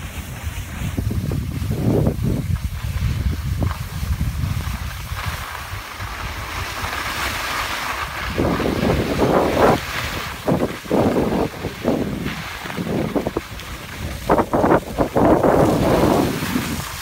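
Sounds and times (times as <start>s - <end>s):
skis sliding on snow: 0.0s - 17.0s
wind rumbling on microphone: 0.0s - 17.0s.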